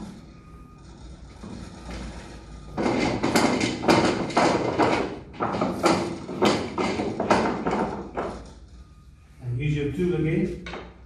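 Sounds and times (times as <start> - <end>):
clamp knocks and clatter: 2.8 - 8.6.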